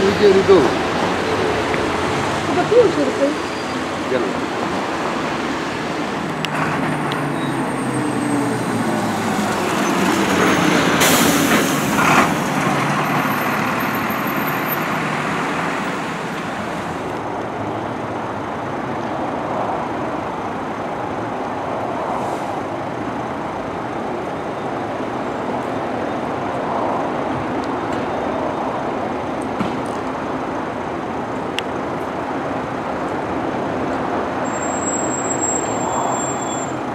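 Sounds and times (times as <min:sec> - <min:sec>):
loud rush of noise: 0:00.0 - 0:36.9
road noise: 0:00.0 - 0:36.9.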